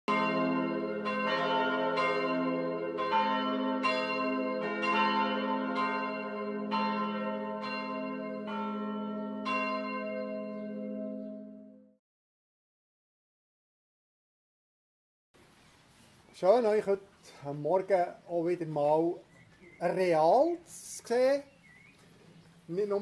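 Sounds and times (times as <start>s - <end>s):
church bells ringing: 0.1s - 12.0s.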